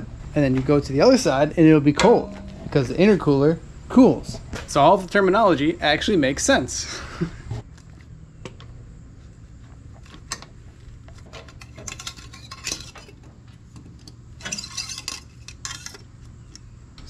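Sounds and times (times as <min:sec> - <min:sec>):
metal pipe and clamps clinking: 0:02.0 - 0:03.1, 0:11.2 - 0:13.3, 0:14.0 - 0:16.6.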